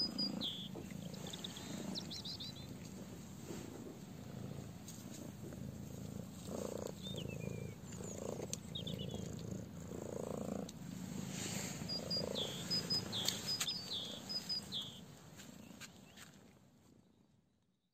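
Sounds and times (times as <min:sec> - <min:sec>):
small bird chirping: 0:00.0 - 0:03.1, 0:06.4 - 0:09.6, 0:11.2 - 0:16.3
cat purring: 0:00.0 - 0:15.1.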